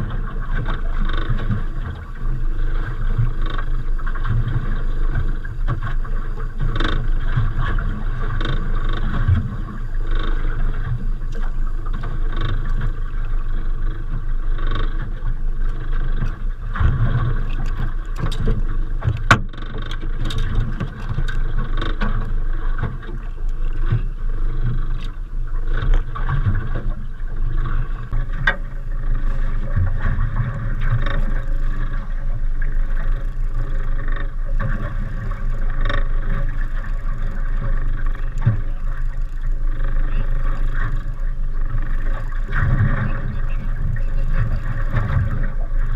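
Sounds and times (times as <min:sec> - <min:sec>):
water noise: 0:00.0 - 0:45.9
wind: 0:00.0 - 0:45.9
sharp knocks and clicks: 0:15.7 - 0:23.2, 0:28.2 - 0:28.7.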